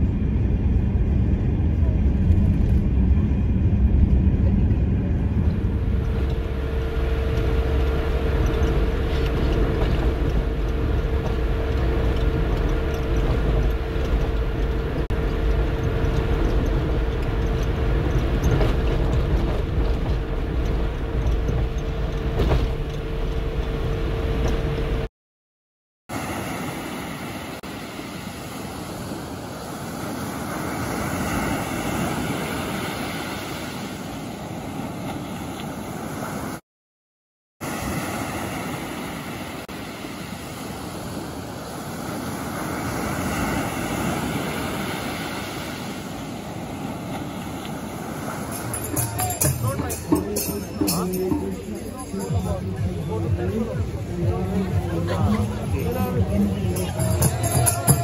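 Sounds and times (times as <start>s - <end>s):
steady whine: 0.0s - 25.1s, 37.8s - 58.0s
van road and engine rumble: 0.0s - 25.1s, 46.7s - 58.0s
waves washing on sand: 26.1s - 36.6s, 37.6s - 52.7s.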